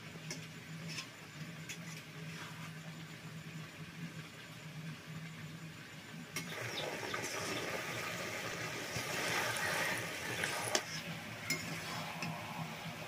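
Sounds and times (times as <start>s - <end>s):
vegetables sizzling in oil: 6.3s - 13.0s.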